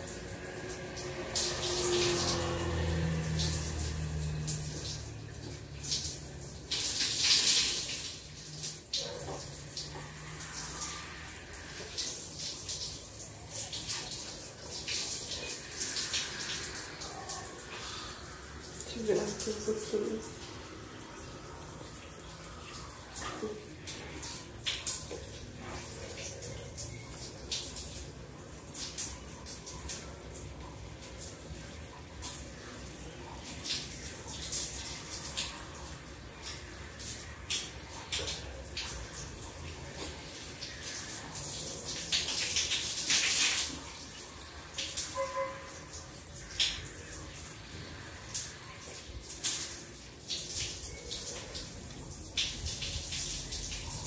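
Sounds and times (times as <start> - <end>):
shower spray hissing: 0.0 - 26.0, 33.7 - 45.2
water splashing: 0.0 - 27.0.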